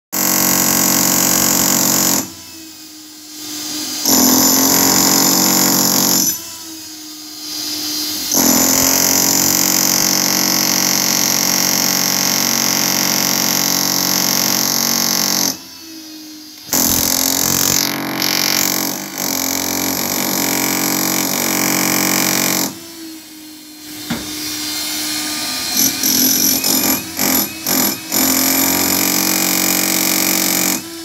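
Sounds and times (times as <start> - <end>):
angle grinder cutting concrete: 3.4 - 6.8, 16.6 - 23.2, 24.3 - 31.0.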